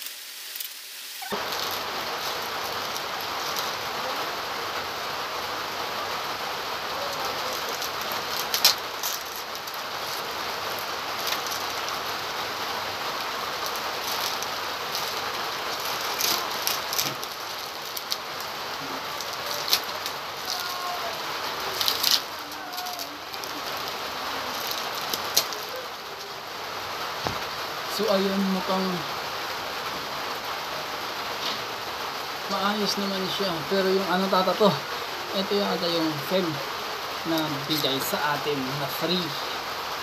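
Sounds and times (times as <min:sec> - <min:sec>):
plastic bag crinkling: 0:00.0 - 0:04.2, 0:06.8 - 0:26.4
steady rain hissing: 0:00.0 - 0:40.0.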